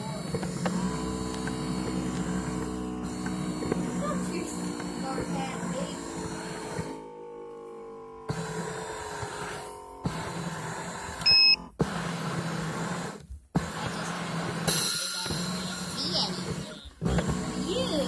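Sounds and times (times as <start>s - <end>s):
massager motor humming: 0.0s - 18.0s
short electronic beep: 11.2s - 11.6s.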